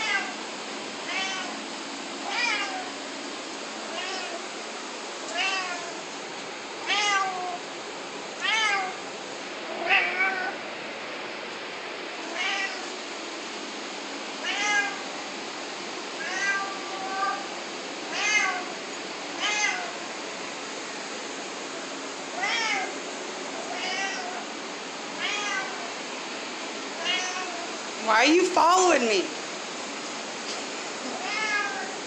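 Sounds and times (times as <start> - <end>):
cat meowing: 0.0 - 0.3, 1.1 - 1.5, 2.3 - 2.9, 3.9 - 4.4, 5.3 - 6.0, 6.8 - 7.6, 8.4 - 9.0, 9.8 - 10.6, 12.3 - 12.8, 14.4 - 15.0, 16.2 - 17.4, 18.1 - 18.7, 19.4 - 20.0, 22.4 - 22.9, 23.7 - 24.4, 25.2 - 25.8, 27.0 - 27.7, 31.1 - 32.0.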